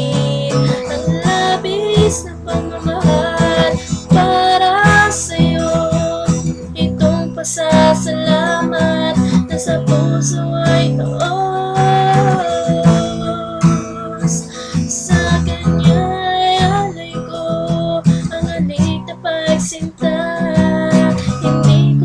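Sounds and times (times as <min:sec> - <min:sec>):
acoustic guitar strumming: 0:00.0 - 0:22.0.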